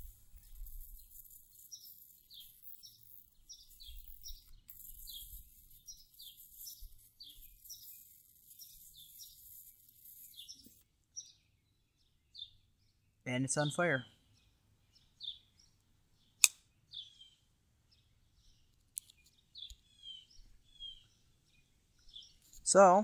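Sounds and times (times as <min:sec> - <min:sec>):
bird chirping: 0:00.0 - 0:22.5.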